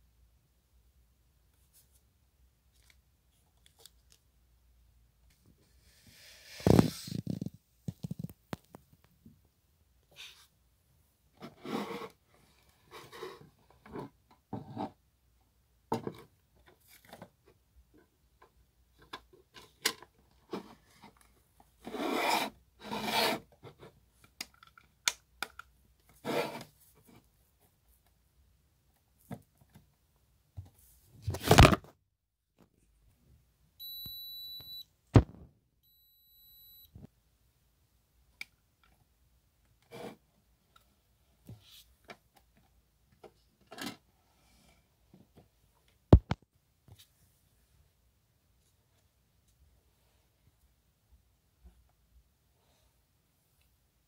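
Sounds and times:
high electronic beep: 0:33.8 - 0:34.8, 0:35.8 - 0:36.9.

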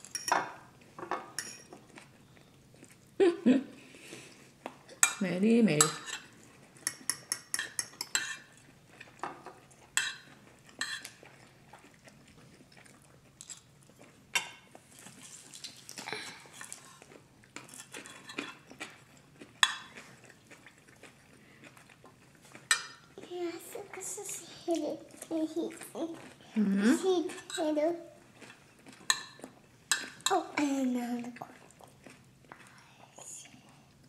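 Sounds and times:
cutlery clinking on ceramic bowls: 0:00.0 - 0:01.8, 0:05.0 - 0:05.2, 0:05.8 - 0:08.6, 0:09.2 - 0:11.2, 0:14.4 - 0:14.7, 0:19.6 - 0:20.0, 0:22.6 - 0:23.0, 0:29.0 - 0:30.7.

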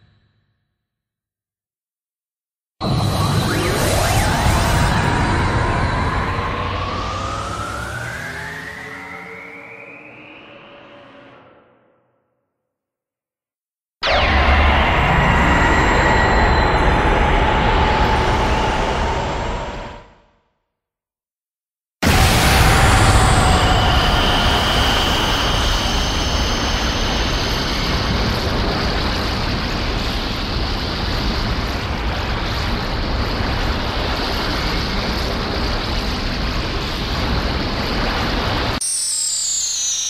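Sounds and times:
faint high falling whistle: 0:02.8 - 0:10.9, 0:14.0 - 0:19.6, 0:22.0 - 0:28.1, 0:38.8 - 0:40.0
loud rumbling rush: 0:04.0 - 0:09.1, 0:14.1 - 0:20.1, 0:22.0 - 0:38.8.

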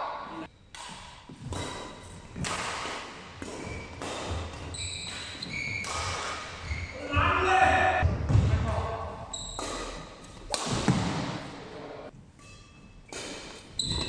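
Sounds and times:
rackets hitting shuttlecock: 0:00.7 - 0:06.8, 0:09.4 - 0:11.7, 0:12.4 - 0:14.0
shoes squeaking on wooden floor: 0:03.3 - 0:07.8, 0:09.3 - 0:10.5, 0:12.4 - 0:14.0.

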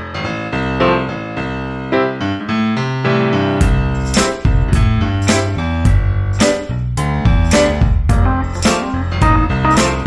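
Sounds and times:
steady beat of sharp hits: 0:03.6 - 0:10.0
keyboard playing notes: 0:07.5 - 0:10.0.

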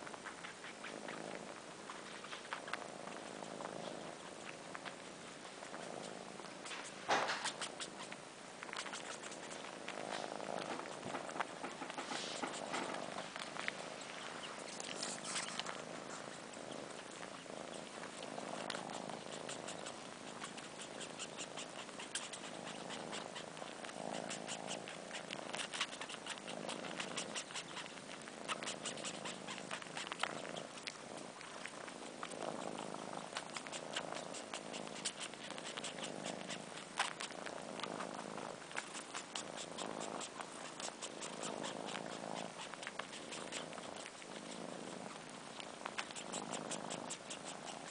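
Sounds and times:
kittens purring: 0:00.0 - 0:47.9
kitten suckling clicks: 0:06.6 - 0:10.0, 0:18.6 - 0:31.0, 0:33.2 - 0:38.0, 0:45.6 - 0:47.9.

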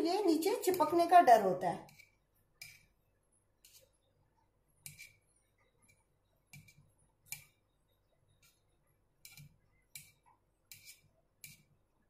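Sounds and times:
knife scraping and tapping on marble: 0:00.4 - 0:01.1, 0:01.8 - 0:03.0, 0:03.6 - 0:04.1, 0:04.8 - 0:07.7, 0:08.3 - 0:11.8.

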